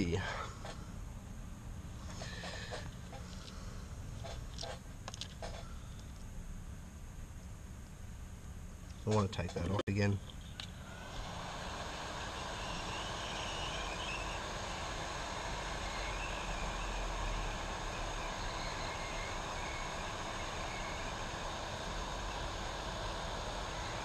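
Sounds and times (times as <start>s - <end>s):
hot air gun blowing: 10.8s - 24.0s.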